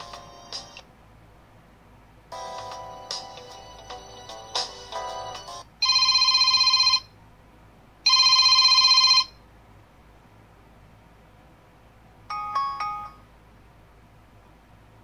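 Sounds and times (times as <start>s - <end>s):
telephone bell ringtone: 5.3s - 7.1s, 8.1s - 9.4s, 12.3s - 13.3s.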